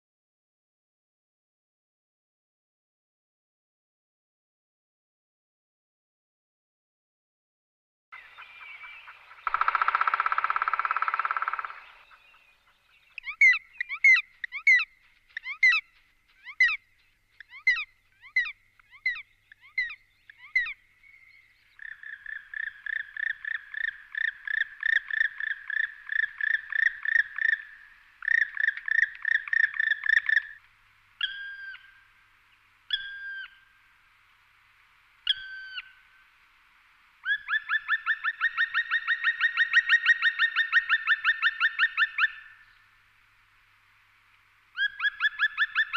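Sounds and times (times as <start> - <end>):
woodpecker calling: 8.2 - 30.6, 32.9 - 33.8, 37.2 - 42.9, 44.8 - 45.9.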